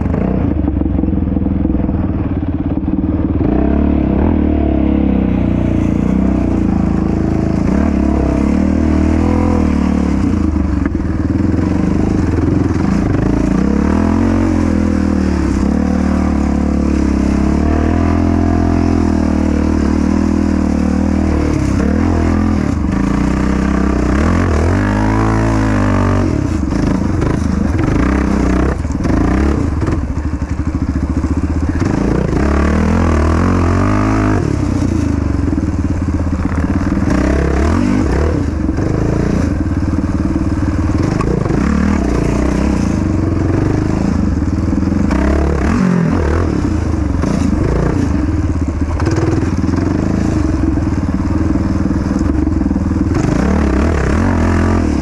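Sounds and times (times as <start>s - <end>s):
quad engine revving: 0.0s - 55.0s.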